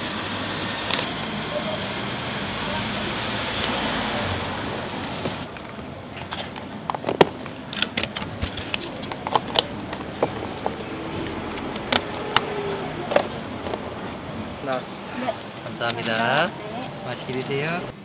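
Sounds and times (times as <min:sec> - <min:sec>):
steady hiss: 0:00.0 - 0:05.5.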